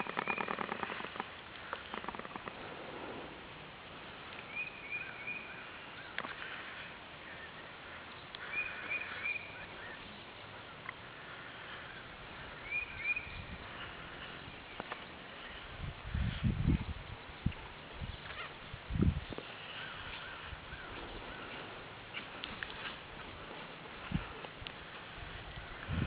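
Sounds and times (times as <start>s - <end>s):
bird chirping: 0.0s - 1.2s, 4.4s - 15.7s
faint clicks: 0.0s - 2.6s, 6.1s - 6.6s, 8.1s - 9.0s, 20.9s - 23.0s
outdoor background noise: 0.0s - 26.0s.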